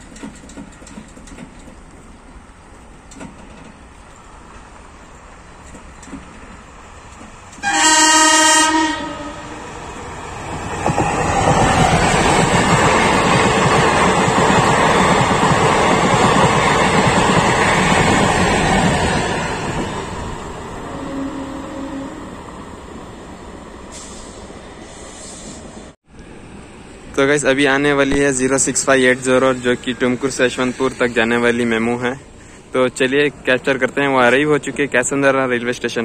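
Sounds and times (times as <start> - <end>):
train wheels clattering: 0.0 - 4.8, 5.5 - 7.7
train horn: 7.6 - 9.6, 20.9 - 22.4.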